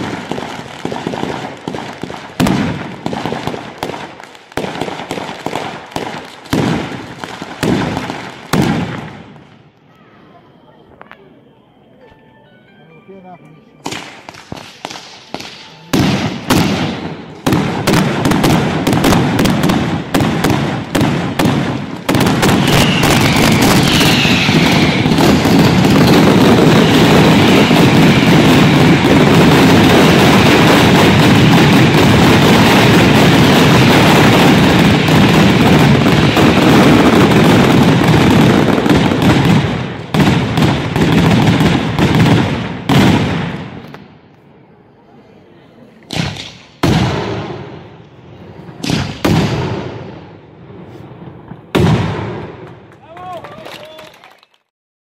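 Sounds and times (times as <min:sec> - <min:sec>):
firecracker bangs: 0:00.0 - 0:09.4, 0:13.8 - 0:44.1, 0:46.1 - 0:48.0, 0:48.8 - 0:53.3.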